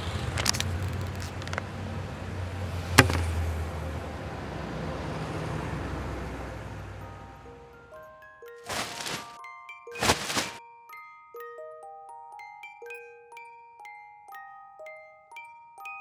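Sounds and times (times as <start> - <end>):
street traffic rumble: 0.0 - 9.4.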